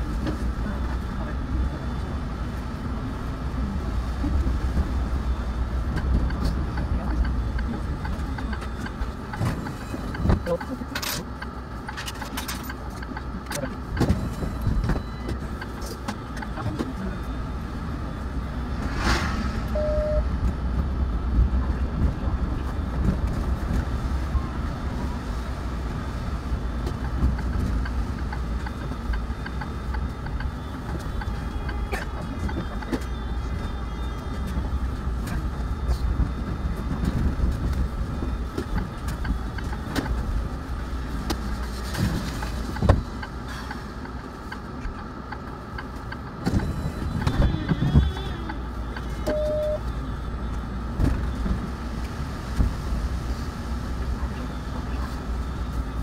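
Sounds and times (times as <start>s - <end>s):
bus engine rumble: 0.0s - 56.0s
road noise: 0.0s - 56.0s
brief hiss: 18.8s - 19.8s.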